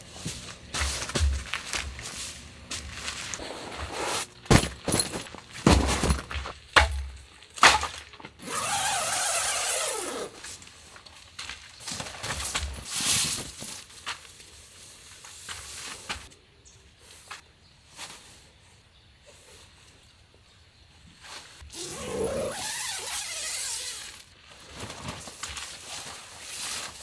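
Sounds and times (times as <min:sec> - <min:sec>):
camping gear knocks and thumps: 0:04.5 - 0:08.4.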